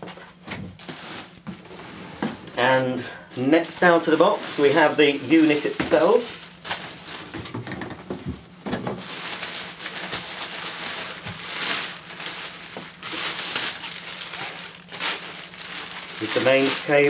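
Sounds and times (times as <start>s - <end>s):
plastic bag crinkling: 3.3s - 8.0s, 8.8s - 17.0s.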